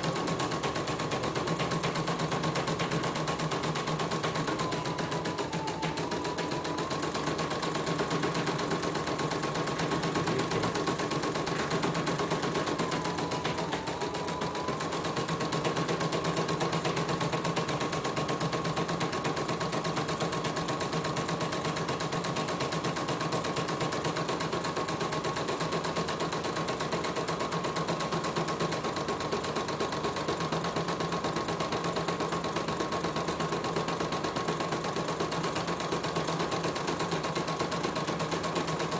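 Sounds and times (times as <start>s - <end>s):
motor whine: 3.9s - 9.0s.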